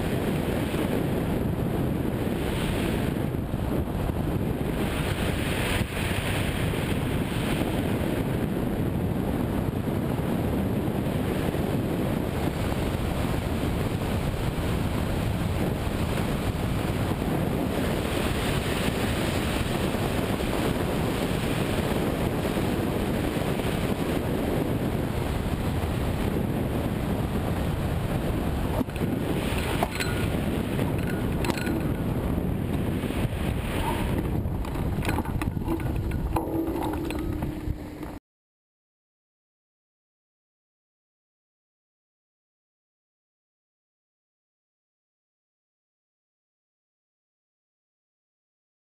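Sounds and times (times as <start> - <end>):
wind rushing over microphone: 0.0 - 38.2.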